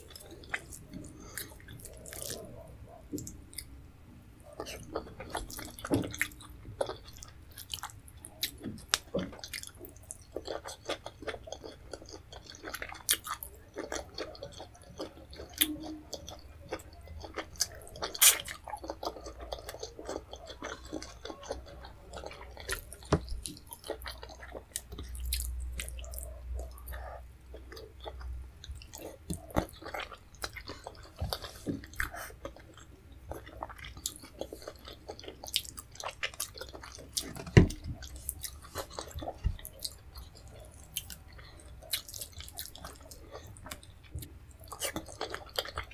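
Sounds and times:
chewing with wet mouth clicks: 0:00.0 - 0:03.7, 0:04.4 - 0:45.9.

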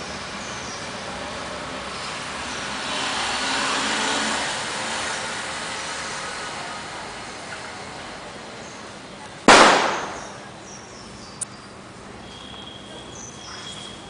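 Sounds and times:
small birds chirping: 0:00.0 - 0:01.1, 0:09.9 - 0:14.0
loud bang: 0:09.5 - 0:10.4.

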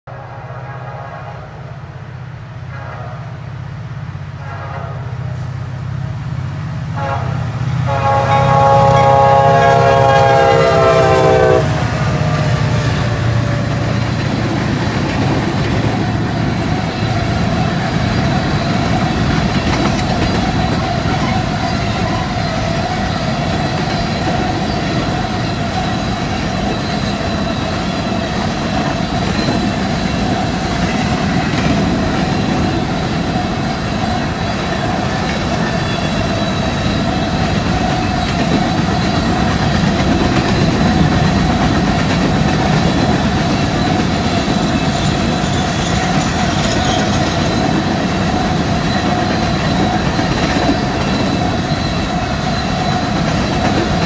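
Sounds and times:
train horn blowing: 0:00.1 - 0:01.8, 0:02.6 - 0:03.6, 0:04.3 - 0:05.6, 0:06.9 - 0:12.6
train engine rumble: 0:00.1 - 0:54.0
train wheels on rails: 0:03.5 - 0:54.0.

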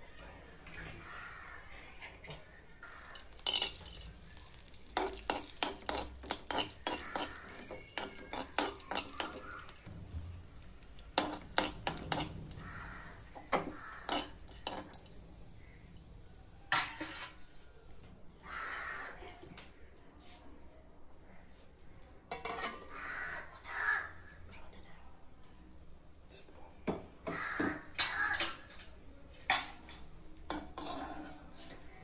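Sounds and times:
faint sizzle: 0:02.7 - 0:18.8
metal spoon clinking in a pan: 0:03.1 - 0:09.9, 0:11.1 - 0:12.6, 0:14.1 - 0:15.2, 0:28.0 - 0:31.6.

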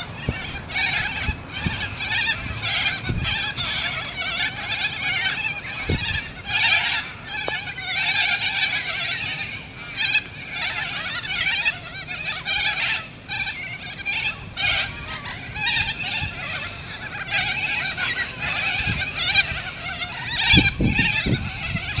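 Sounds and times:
flock of birds screeching: 0:00.0 - 0:22.0.

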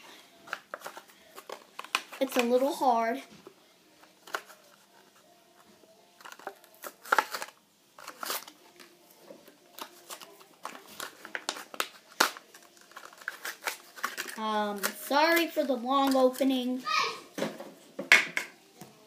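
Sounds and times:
plastic packaging crinkling: 0:06.2 - 0:08.9, 0:09.7 - 0:15.0.

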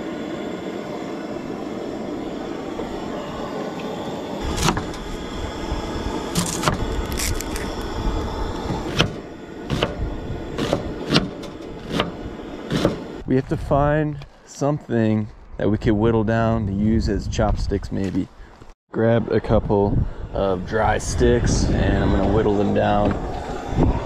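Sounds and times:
gas burner hissing: 0:00.0 - 0:13.5, 0:19.8 - 0:24.0.

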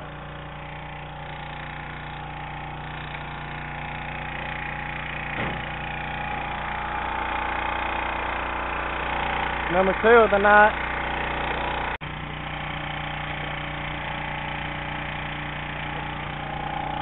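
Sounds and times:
small boat engine humming: 0:00.0 - 0:17.0
brief knock: 0:05.4 - 0:05.7.

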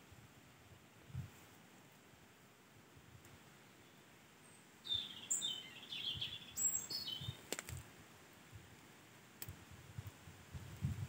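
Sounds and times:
small bird chirping: 0:03.6 - 0:07.4
faint sharp clicks: 0:07.4 - 0:07.9, 0:08.8 - 0:10.2.

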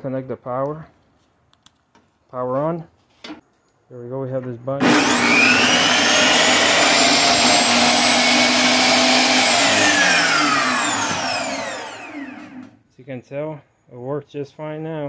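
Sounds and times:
table saw motor whining: 0:04.8 - 0:12.8.

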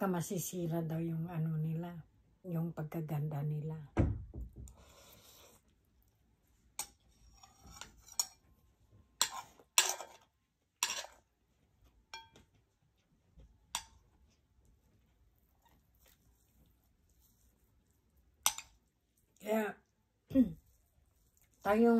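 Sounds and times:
cutlery clinking on plate: 0:09.2 - 0:11.2, 0:12.1 - 0:12.5.

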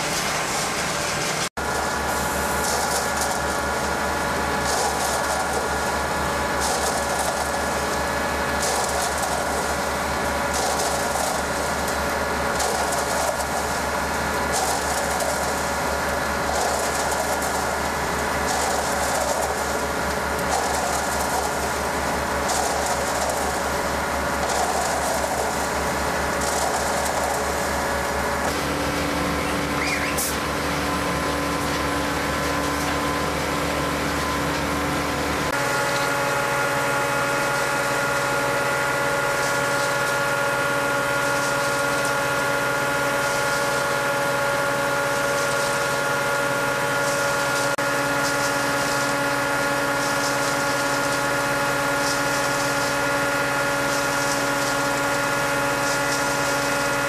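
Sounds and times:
machinery hum: 0:00.0 - 0:57.0.

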